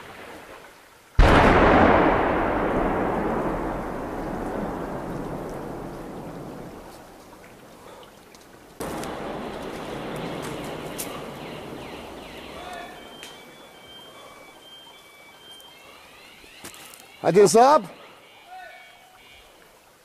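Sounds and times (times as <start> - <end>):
missile explosion blast: 1.2 - 6.8.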